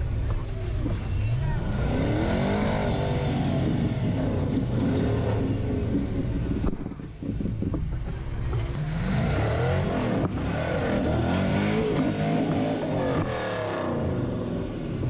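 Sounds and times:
buggy engines revving: 0:00.0 - 0:15.0.

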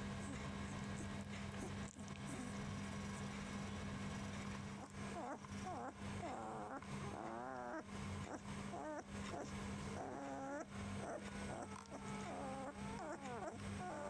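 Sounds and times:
steady low hum: 0:00.0 - 0:14.0
puppies whimpering and squeaking: 0:04.7 - 0:14.0.

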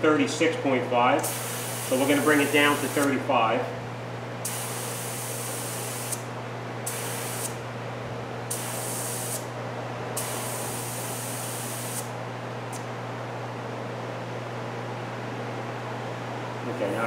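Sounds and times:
steady low hum: 0:00.0 - 0:17.0
air hissing out of tire: 0:01.2 - 0:03.1, 0:10.2 - 0:12.1.

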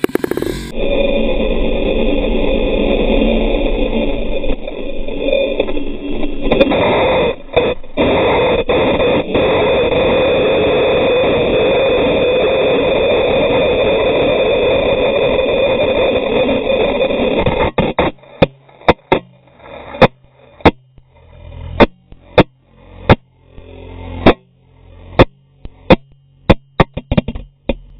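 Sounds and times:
motorcycle scraping on tarmac: 0:00.0 - 0:00.9.

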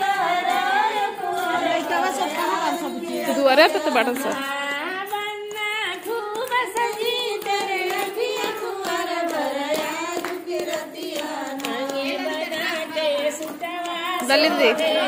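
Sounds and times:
women singing folk song: 0:00.0 - 0:15.0
hands clapping in time: 0:01.4 - 0:15.0.

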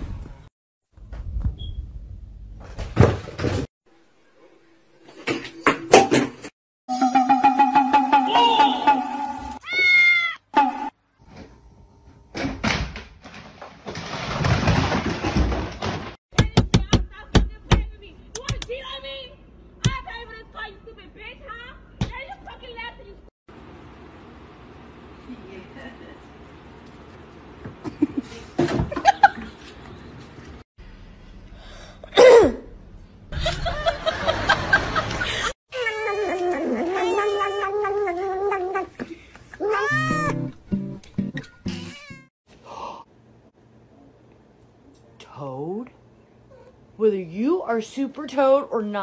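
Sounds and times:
cat sneezing: 0:32.2 - 0:32.6
cat meow: 0:39.6 - 0:40.4.

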